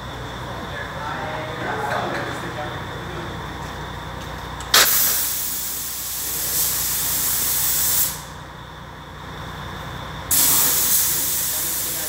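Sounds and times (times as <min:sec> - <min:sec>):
steady low hum: 0:00.0 - 0:12.0
paint spray gun hissing: 0:04.8 - 0:08.3, 0:10.3 - 0:12.0.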